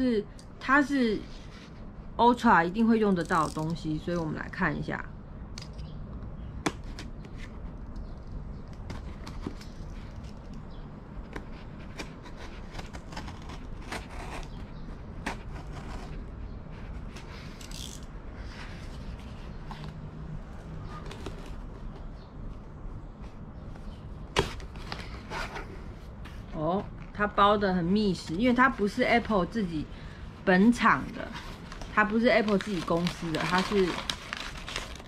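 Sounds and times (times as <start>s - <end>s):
knife cutting cardboard box: 11.4s - 16.2s.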